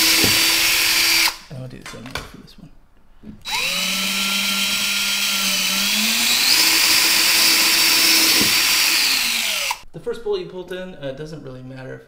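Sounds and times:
cordless drill motor whine: 0:00.0 - 0:01.4, 0:03.5 - 0:09.8.

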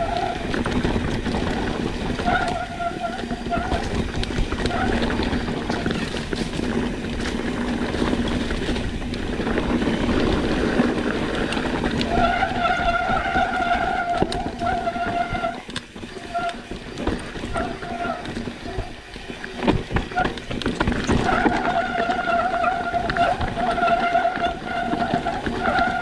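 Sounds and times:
tyre rumble: 0:00.0 - 0:26.0
wind buffeting microphone: 0:00.0 - 0:26.0.

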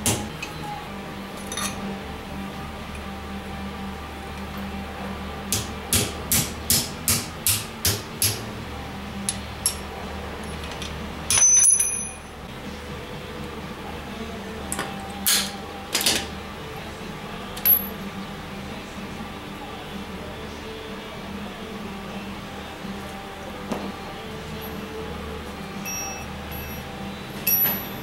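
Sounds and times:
hammer striking steel: 0:05.5 - 0:08.4, 0:11.3 - 0:12.3
ringing metal clang: 0:11.3 - 0:12.3, 0:25.8 - 0:26.8, 0:27.4 - 0:28.0.

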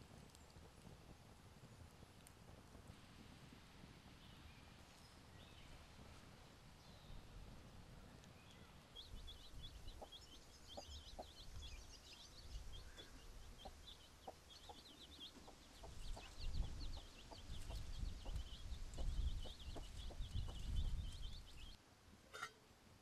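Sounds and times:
chicks peeping: 0:09.0 - 0:21.8
hen clucking: 0:09.3 - 0:11.8, 0:12.7 - 0:21.8.

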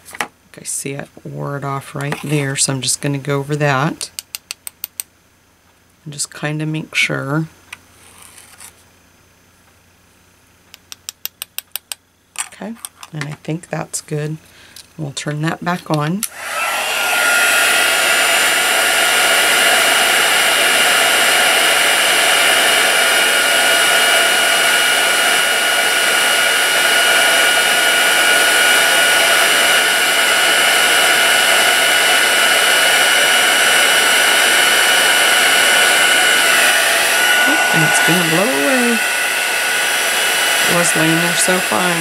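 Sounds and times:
heat tool blowing air with fan whine: 0:13.4 - 0:42.0.

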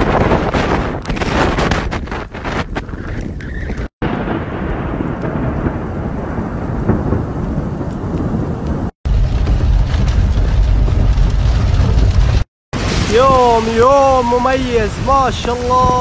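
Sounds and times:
thunder rumbling: 0:00.0 - 0:16.0
heavy rain: 0:04.0 - 0:16.0.

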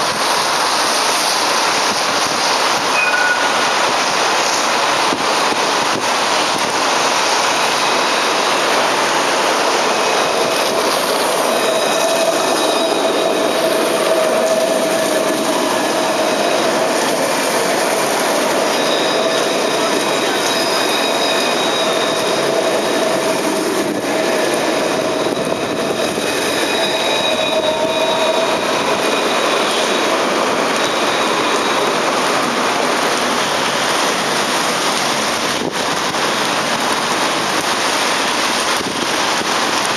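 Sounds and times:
rain on wet pavement: 0:00.0 - 0:39.9
tram rolling past: 0:00.0 - 0:39.9
high ringing tones: 0:02.9 - 0:03.8, 0:26.6 - 0:29.6.

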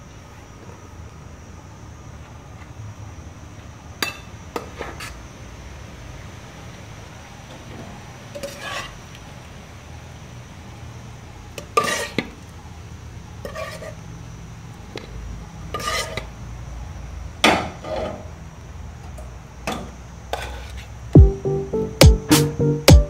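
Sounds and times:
ladle scraping metal pots: 0:11.7 - 0:12.2, 0:15.8 - 0:16.3
low steady hum: 0:21.2 - 0:23.0.

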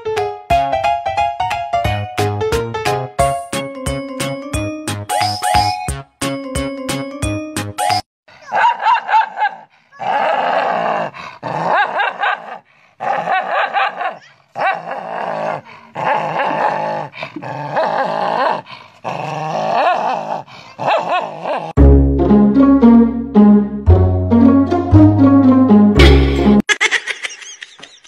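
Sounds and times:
dog growling and barking: 0:08.4 - 0:21.8.

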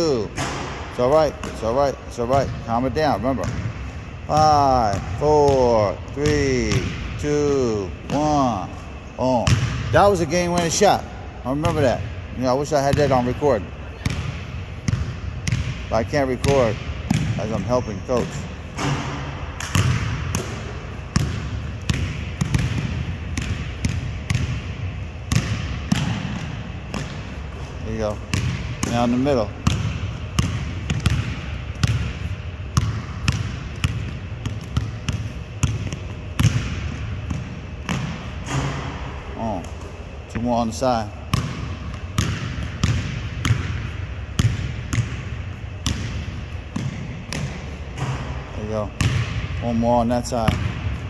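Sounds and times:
basketball bouncing on wooden floor: 0:03.4 - 0:03.7, 0:16.4 - 0:17.6, 0:18.2 - 0:24.7, 0:25.3 - 0:27.3, 0:28.3 - 0:32.2, 0:32.8 - 0:39.0, 0:41.3 - 0:48.4, 0:49.0 - 0:49.6
basketball bouncing on hardwood: 0:32.8 - 0:38.9.

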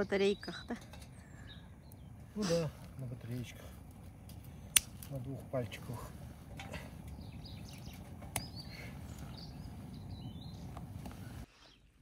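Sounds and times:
low outdoor rumble: 0:00.0 - 0:11.5
small birds chirping: 0:00.0 - 0:12.0.

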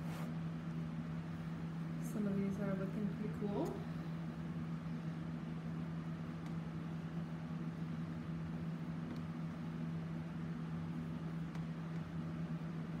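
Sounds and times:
low mechanical hum with hiss: 0:00.0 - 0:13.0.

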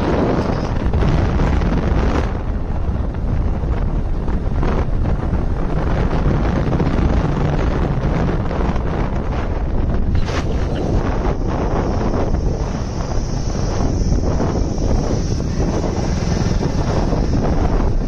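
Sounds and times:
motorcycle engine and road noise: 0:00.0 - 0:18.0
wind buffeting microphone: 0:00.0 - 0:18.0.

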